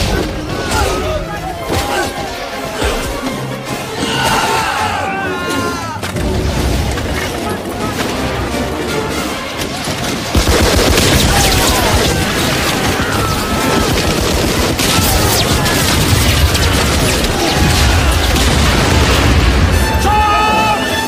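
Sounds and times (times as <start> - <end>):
rapid machine-gun fire: 9.2 - 19.9
heavy booming explosions: 9.8 - 20.6.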